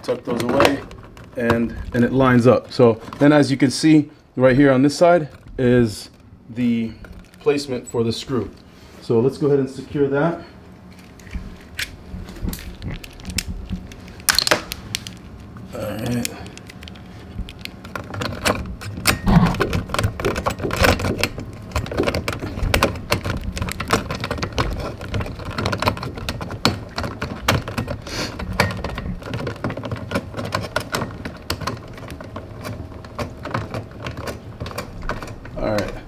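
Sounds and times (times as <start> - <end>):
metal parts clicking and tapping: 16.0 - 36.0.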